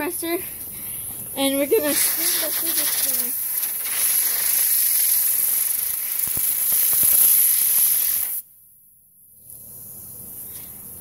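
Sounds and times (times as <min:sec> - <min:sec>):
compressed air hissing from hose: 0:01.7 - 0:08.4.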